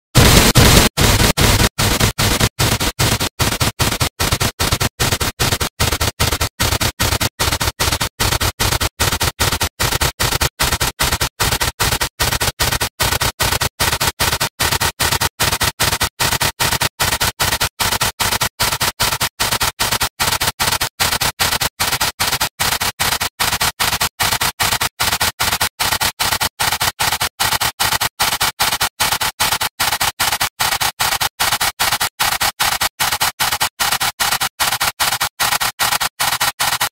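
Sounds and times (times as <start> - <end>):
harsh distorted hiss-like noise: 0.2 - 4.0.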